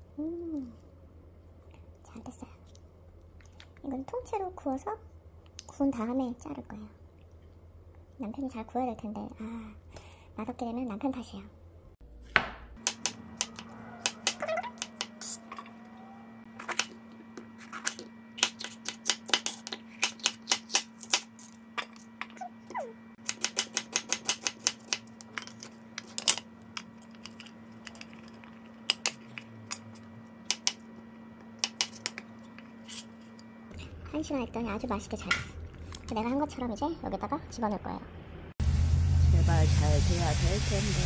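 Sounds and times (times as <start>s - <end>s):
steady low hum: 0.0s - 41.0s
knife chopping on cutting board: 12.3s - 15.1s.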